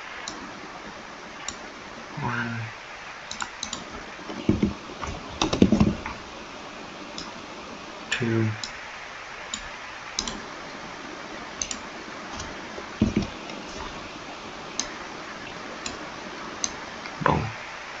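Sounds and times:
mouse and keyboard clicks: 3.3 - 3.9, 9.6 - 10.4, 11.6 - 11.8.

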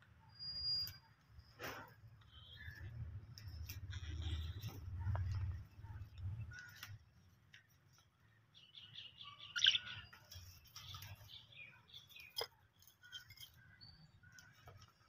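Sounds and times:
budgerigars chirping and warbling: 8.7 - 12.4.

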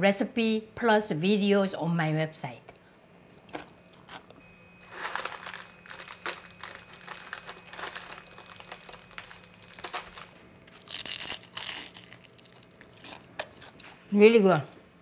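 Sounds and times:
fried chicken crust crunching: 4.9 - 14.1.

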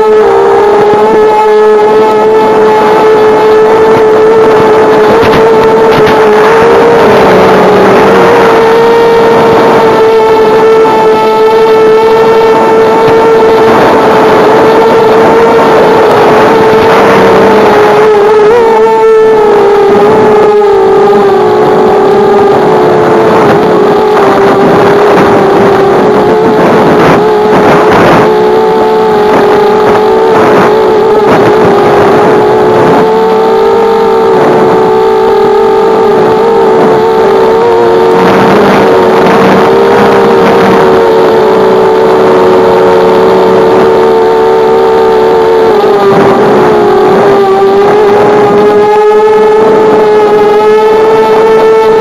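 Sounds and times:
drone motors whining: 0.0 - 52.0.

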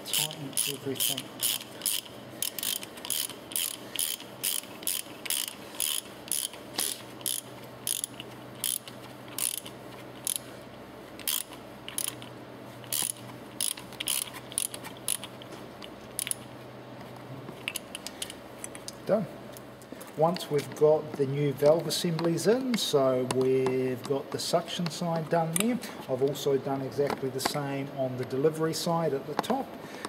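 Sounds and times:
ratcheting spanner clicking: 0.0 - 10.4, 11.2 - 16.5.

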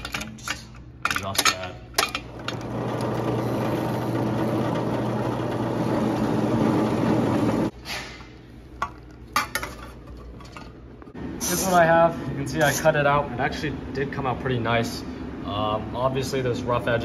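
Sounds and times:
drill press grinding sheet metal: 2.3 - 7.7.

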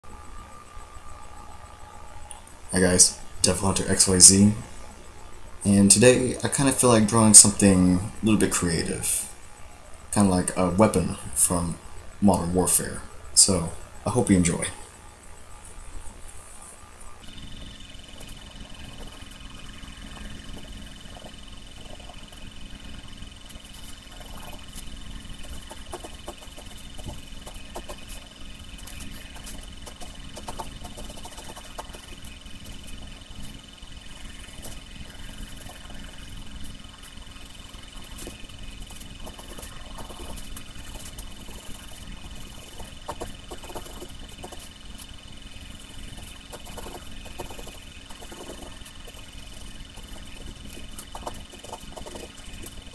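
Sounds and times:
background hum: 0.0 - 52.9
thin high whine: 0.0 - 52.9
pencil scratching on paper: 18.1 - 52.9.

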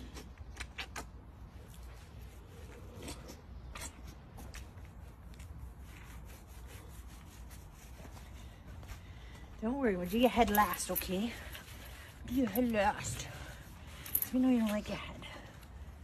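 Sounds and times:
rustles: 0.0 - 16.0
hands scrubbing wet fur: 3.6 - 9.0, 9.6 - 15.1.

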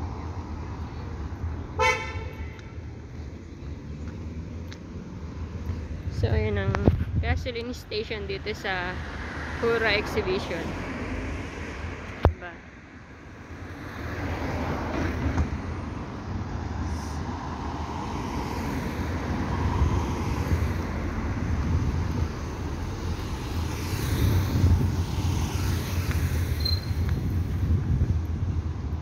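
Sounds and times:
road traffic noise: 0.0 - 29.0
car passing by: 8.3 - 12.2, 13.6 - 28.5.

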